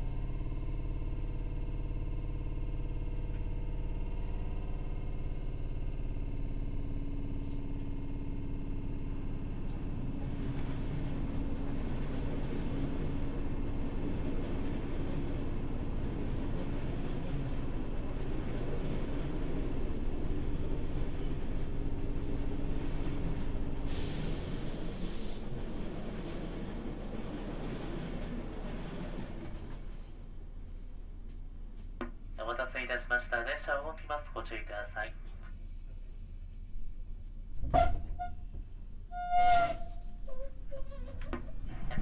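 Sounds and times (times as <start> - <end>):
train wheels rumbling on rails: 0.0 - 32.4, 36.6 - 42.0
brief hiss: 23.8 - 25.6.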